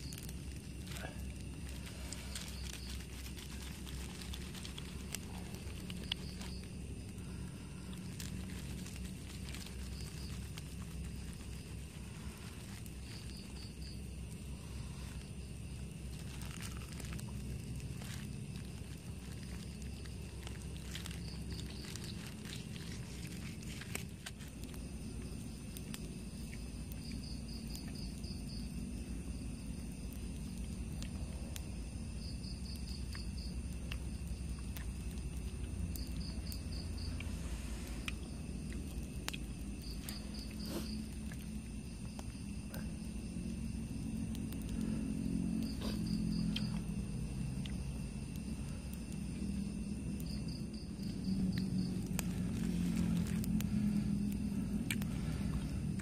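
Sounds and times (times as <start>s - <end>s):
cricket trilling: 0.0s - 56.0s
insects droning: 0.0s - 56.0s
low background noise: 0.0s - 56.0s.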